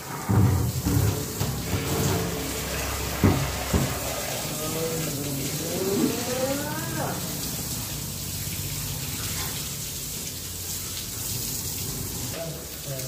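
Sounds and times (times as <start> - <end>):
plastic buckets knocking: 0.0 - 4.2
water splashing on cement floor: 0.0 - 13.0.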